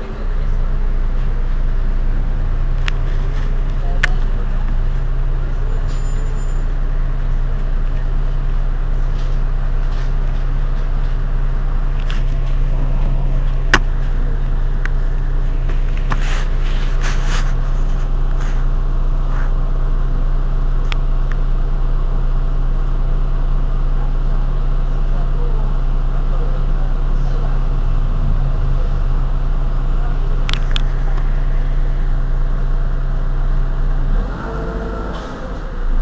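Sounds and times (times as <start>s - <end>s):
bus diesel engine idling: 0.0s - 36.0s.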